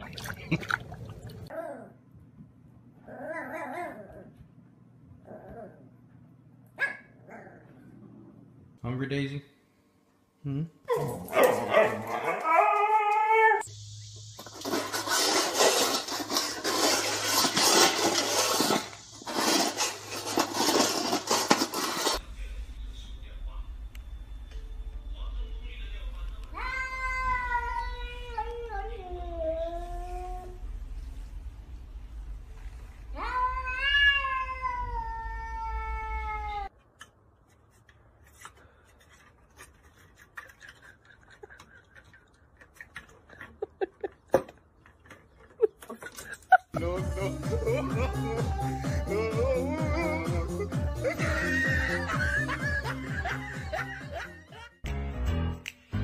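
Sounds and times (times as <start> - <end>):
metal bowl scraping on floor: 14.2 - 22.2
cat meowing: 33.2 - 36.7.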